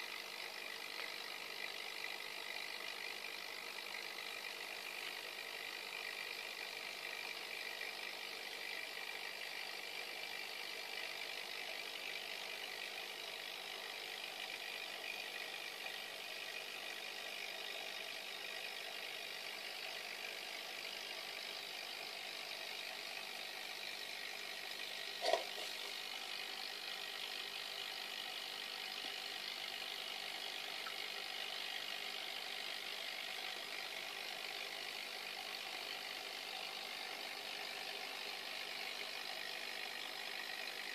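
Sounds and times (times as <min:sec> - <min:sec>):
aquarium equipment humming: 0:24.6 - 0:29.5.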